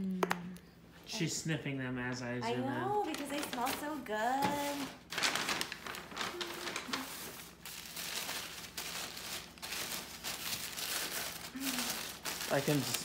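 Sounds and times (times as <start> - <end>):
tissue paper crinkling: 2.9 - 13.0.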